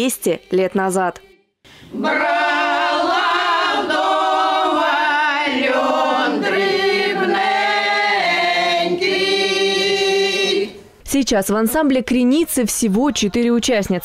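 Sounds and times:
women's choir singing: 0.0s - 11.0s.

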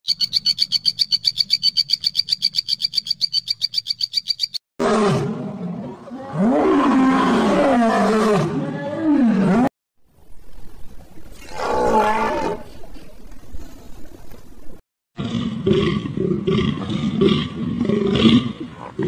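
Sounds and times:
lion roaring: 4.8s - 9.7s, 11.4s - 12.8s.

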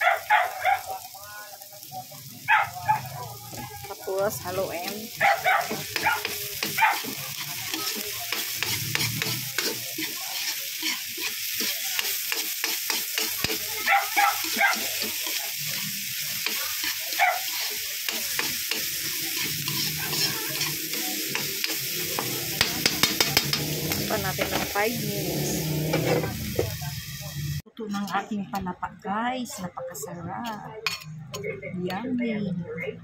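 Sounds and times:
food sizzling in hot oil: 0.0s - 27.6s
spatula scraping wok: 3.4s - 28.4s.

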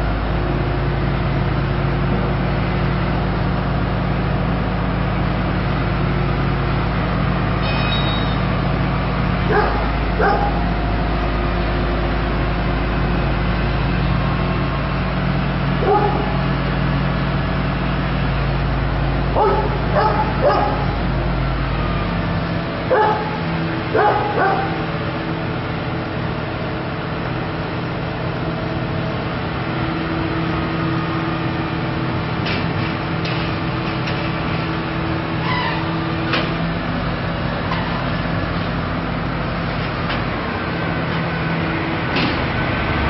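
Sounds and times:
engine drone: 0.0s - 43.0s
dog barking: 9.5s - 10.6s, 15.8s - 16.4s, 19.4s - 21.0s, 22.9s - 24.8s.

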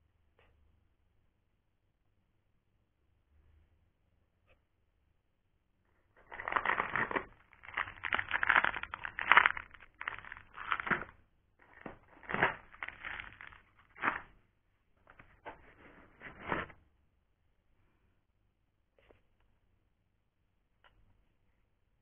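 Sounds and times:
foam and cardboard rubbing: 6.2s - 14.3s, 15.1s - 16.8s.

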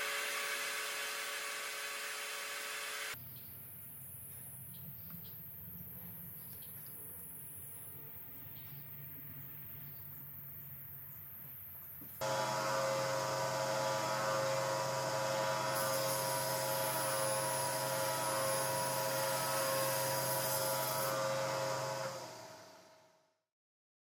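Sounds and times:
table saw running: 0.0s - 3.2s, 12.2s - 23.1s.

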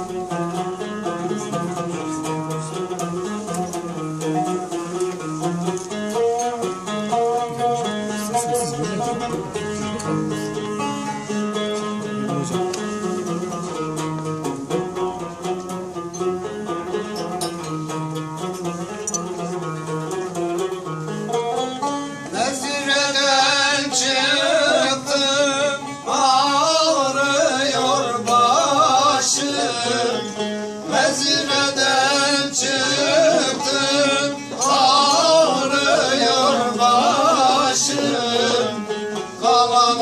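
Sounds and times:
man singing folk song: 0.0s - 5.2s, 6.1s - 13.8s, 22.1s - 40.0s
plucked lute: 0.0s - 40.0s.

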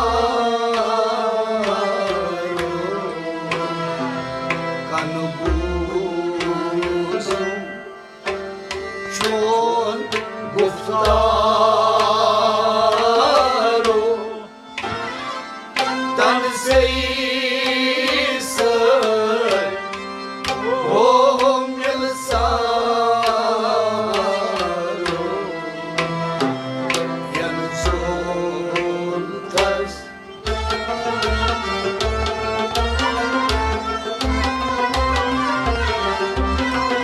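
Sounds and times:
harmonium: 0.0s - 37.0s
man singing: 4.9s - 7.7s, 9.1s - 14.5s, 16.2s - 19.8s, 20.6s - 26.2s, 27.1s - 30.1s.

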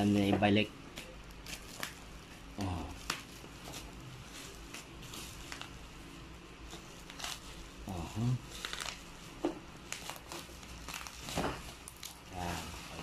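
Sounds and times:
bubble wrap rustling and crinkling: 0.0s - 13.0s.

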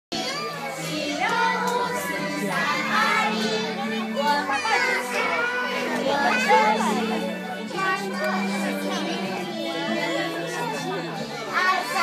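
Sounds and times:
children singing: 0.1s - 12.0s.

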